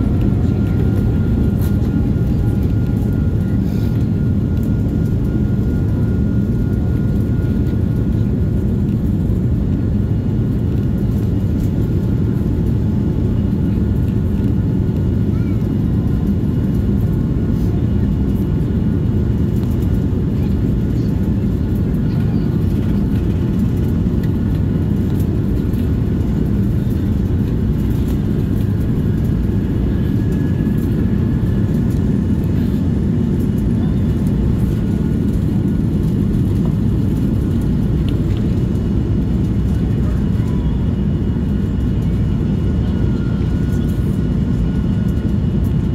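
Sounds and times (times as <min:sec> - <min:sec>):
jet engines rumbling: 0:00.0 - 0:45.9.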